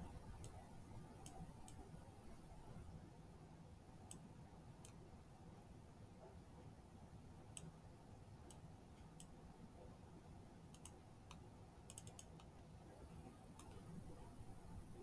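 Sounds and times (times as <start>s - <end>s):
computer mouse clicks: 0.4s - 0.6s, 1.2s - 1.8s, 8.5s - 9.4s, 10.7s - 12.5s, 13.6s - 13.9s.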